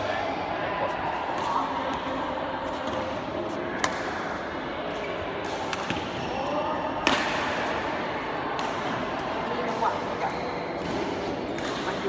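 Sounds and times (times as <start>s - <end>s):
rackets striking a shuttlecock: 2.7s - 4.4s, 5.4s - 6.2s, 7.0s - 7.8s, 8.5s - 9.8s.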